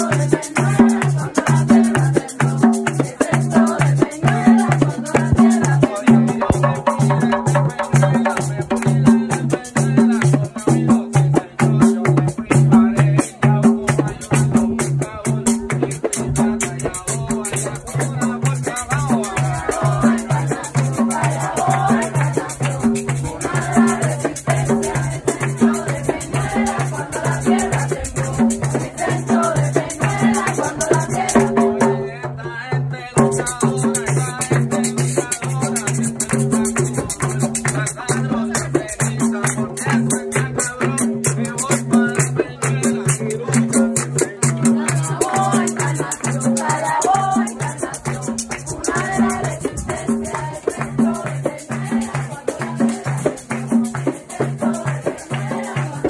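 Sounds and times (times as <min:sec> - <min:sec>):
shaken rattle: 0:00.0 - 0:08.6, 0:15.8 - 0:31.4, 0:33.4 - 0:39.1, 0:41.5 - 0:56.0
group singing: 0:00.0 - 0:56.0
drums beating: 0:00.3 - 0:32.4.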